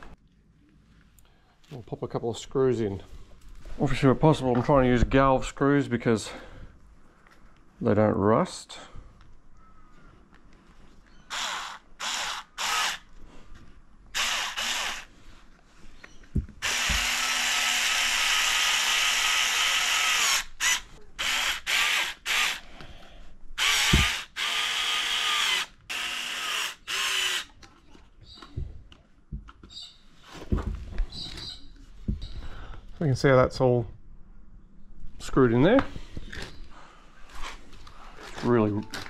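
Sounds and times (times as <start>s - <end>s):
power drill driving screws: 11.3s - 13.1s, 14.1s - 15.1s, 16.6s - 22.7s, 23.6s - 27.6s.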